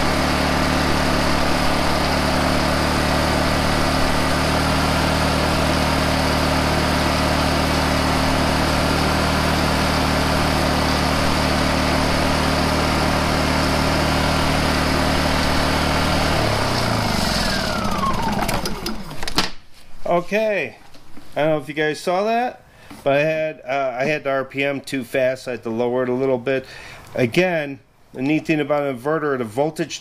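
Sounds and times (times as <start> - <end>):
generator engine running: 0.0 - 19.4.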